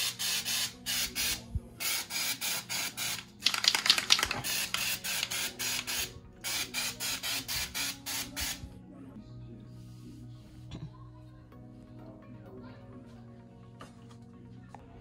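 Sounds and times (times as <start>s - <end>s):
aerosol can spraying in hissing spurts: 0.0s - 8.6s.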